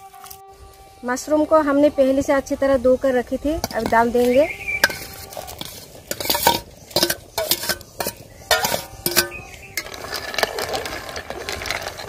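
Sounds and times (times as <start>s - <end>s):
spoon scraping steel bowl: 3.6s - 12.0s.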